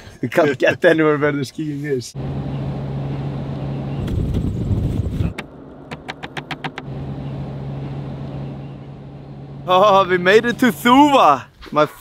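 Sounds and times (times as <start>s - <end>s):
wind and road noise: 0.0s - 12.0s
low engine hum: 2.2s - 11.4s.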